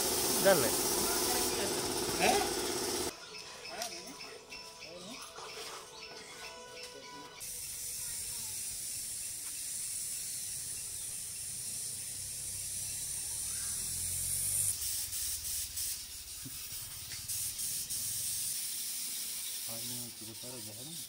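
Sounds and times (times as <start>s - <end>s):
steady high hiss: 0.0s - 3.1s, 7.4s - 21.0s
sandpaper rubbing on metal: 13.6s - 21.0s.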